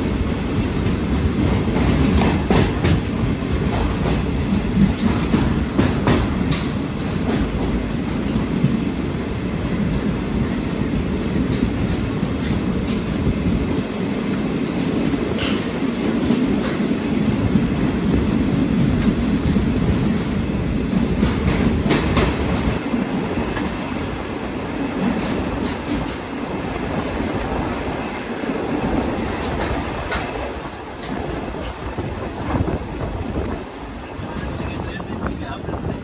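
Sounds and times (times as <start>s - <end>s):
train wheels rumbling on rails: 0.0s - 36.0s.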